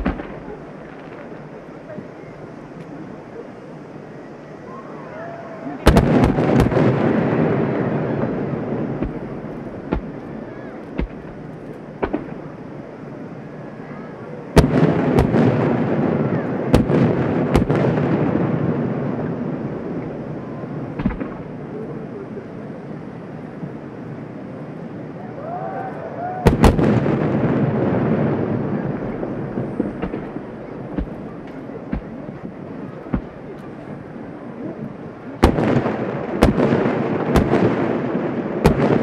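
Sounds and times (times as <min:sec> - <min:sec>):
distant firework booms with echo: 0:00.0 - 0:02.1, 0:05.8 - 0:12.6, 0:14.6 - 0:19.9, 0:20.8 - 0:21.6, 0:26.4 - 0:34.1, 0:35.4 - 0:39.0.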